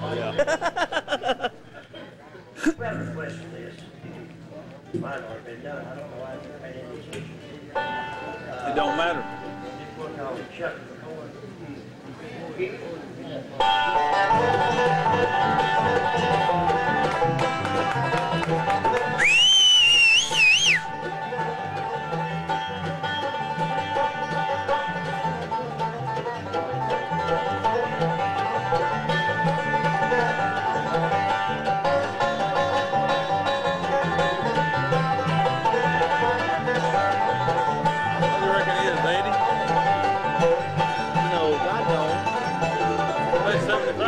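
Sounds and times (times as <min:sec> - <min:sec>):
banjo picking bluegrass: 0:00.0 - 0:11.1, 0:13.4 - 0:44.0
acoustic guitar: 0:13.6 - 0:44.0.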